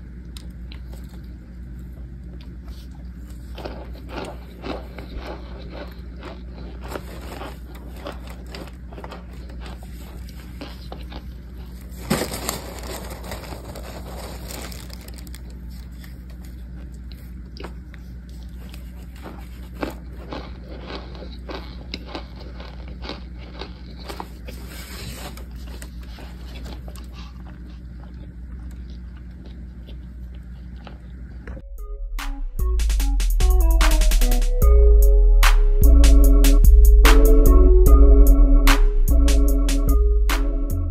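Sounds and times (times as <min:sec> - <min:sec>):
steady low hum: 0:00.0 - 0:40.9
cornstarch chunks crunching: 0:00.3 - 0:31.2.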